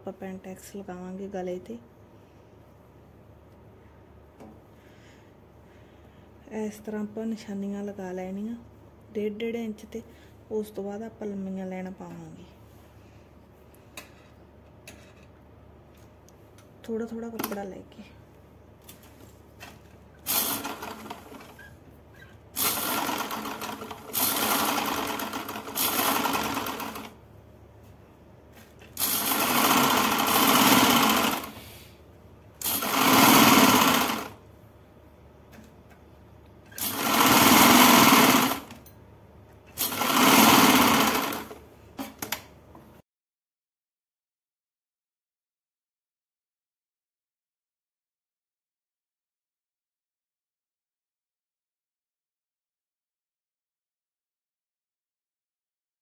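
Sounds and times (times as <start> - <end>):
sewing machine stitching: 20.2 - 27.2, 29.0 - 31.6, 32.6 - 34.4, 36.7 - 38.8, 39.7 - 41.6.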